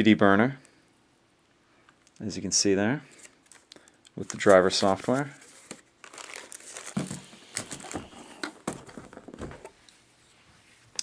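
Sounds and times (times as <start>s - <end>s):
plastic bag crinkling: 3.2s - 9.7s.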